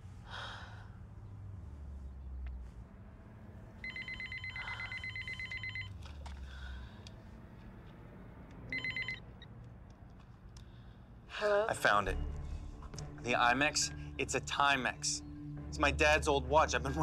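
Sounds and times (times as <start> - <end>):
telephone ringing: 3.8 - 6.0, 8.7 - 9.4.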